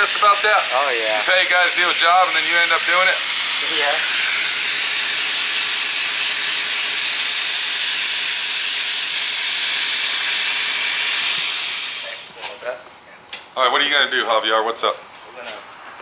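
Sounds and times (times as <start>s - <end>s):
spray gun hissing: 0.0s - 12.4s.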